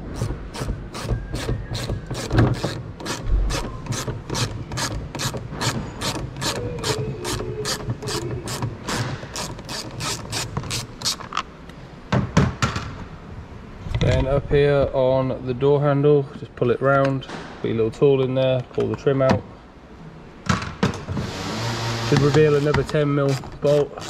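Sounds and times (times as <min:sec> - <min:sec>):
socket ratchet clicking: 0:00.2 - 0:11.5.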